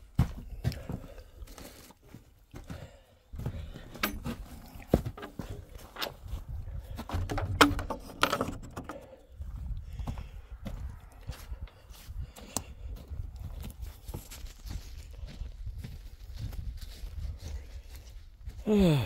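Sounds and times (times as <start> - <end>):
footsteps: 0.0 - 18.6
low rumbling handling noise: 3.7 - 9.6
wooden door knocks and clicks: 7.0 - 9.0.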